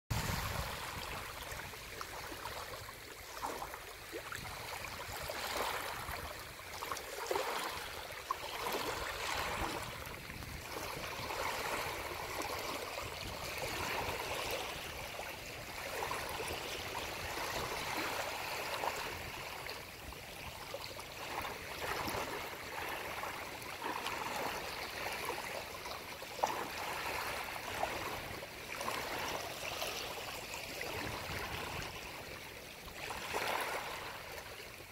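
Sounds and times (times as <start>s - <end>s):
surf washing up shore: 0.1s - 19.9s.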